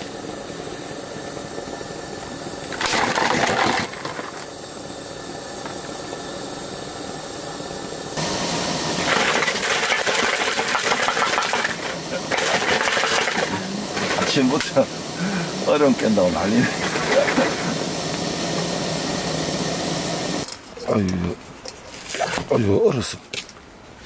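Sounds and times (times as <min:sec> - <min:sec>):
loud harsh noise: 0:08.1 - 0:20.5.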